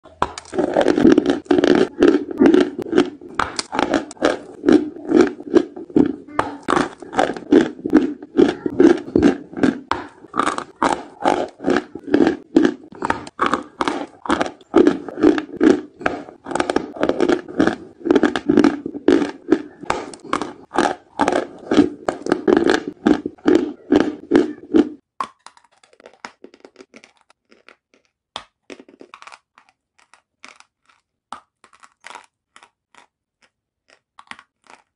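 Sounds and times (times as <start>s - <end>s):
chalk crunching while chewed: 0.1s - 34.9s.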